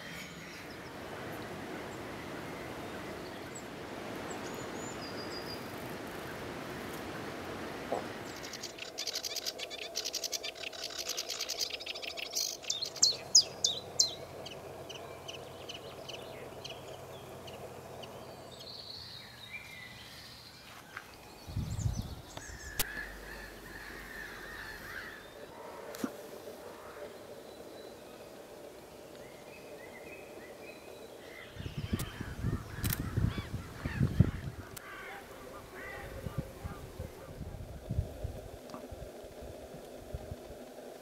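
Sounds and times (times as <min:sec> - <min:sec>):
warbler scratchy song: 0:08.3 - 0:20.8
faint bird calls: 0:22.3 - 0:36.8.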